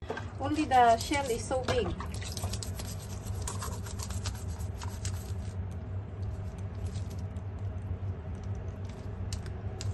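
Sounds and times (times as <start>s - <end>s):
steady low hum: 0.0s - 9.9s
toothbrush scrubbing shell: 2.3s - 5.5s.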